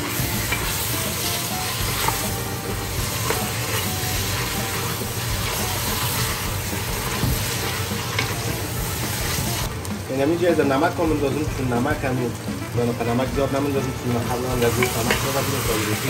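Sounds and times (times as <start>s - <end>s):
meat and onions sizzling: 0.0s - 16.0s
wooden spoon scraping pot: 2.9s - 9.7s.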